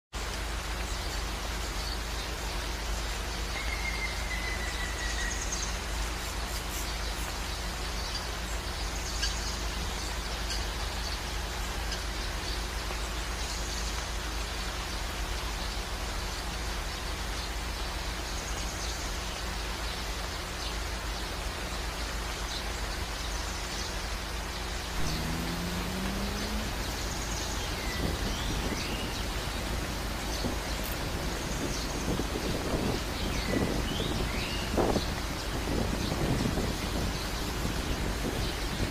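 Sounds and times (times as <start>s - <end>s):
steady rushing outdoor noise: 0.2s - 38.9s
faint bird chirps: 3.5s - 7.4s
low rumble: 24.7s - 33.1s.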